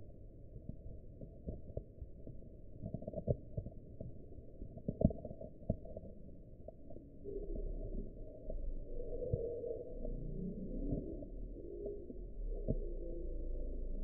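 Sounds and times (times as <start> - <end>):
rabbit chewing slowed down: 7.2 - 14.0.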